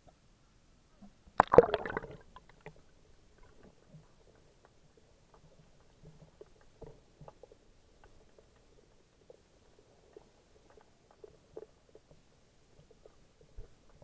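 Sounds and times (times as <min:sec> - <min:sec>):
muffled underwater ticks and clicks: 0:01.0 - 0:14.0
water splashing and gurgling: 0:01.4 - 0:02.8.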